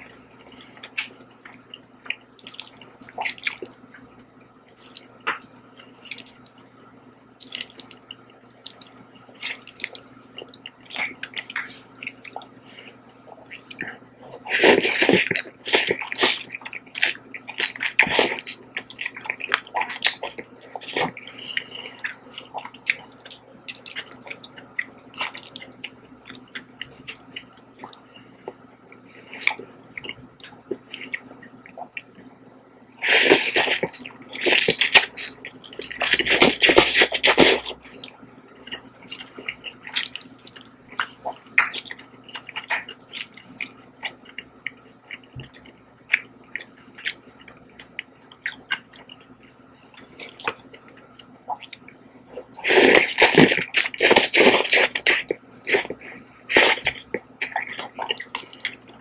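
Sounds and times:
faint steady hum: 0.0s - 59.0s
wet chewing and lip-smacking: 0.0s - 59.0s
slurping noodles: 33.0s - 34.8s, 52.5s - 58.2s.

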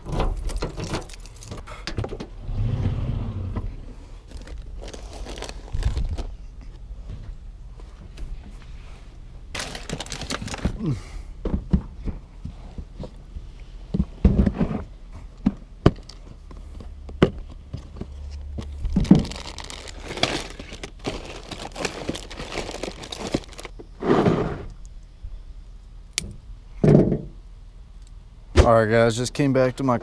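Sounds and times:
plastic bags crinkling: 4.2s - 6.4s, 9.5s - 10.9s, 18.4s - 23.8s.

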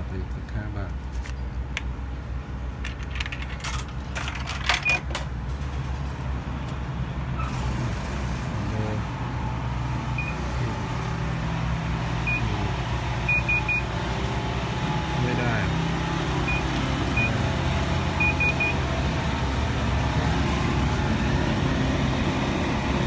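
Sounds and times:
coins rattling through coin slot: 2.8s - 5.3s
short keypad beeps: 18.2s - 18.8s.

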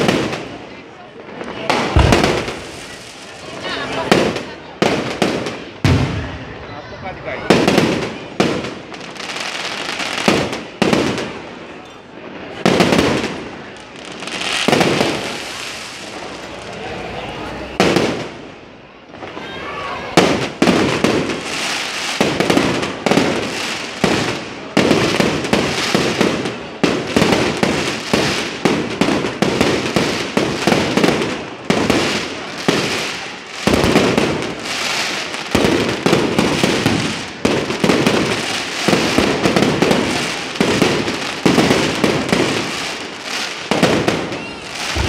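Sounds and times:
fireworks crackling: 0.0s - 19.4s, 20.0s - 45.0s
firework shells bursting: 1.4s - 3.6s, 40.7s - 45.0s.

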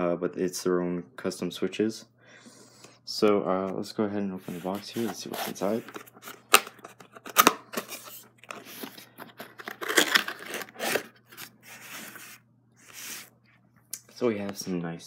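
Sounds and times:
cardboard box lid scraping: 4.4s - 6.4s, 7.2s - 13.3s.

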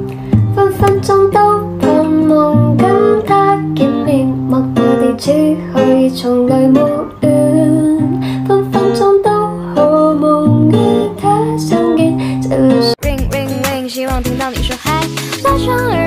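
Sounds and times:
background music with light beat: 13.0s - 16.0s.

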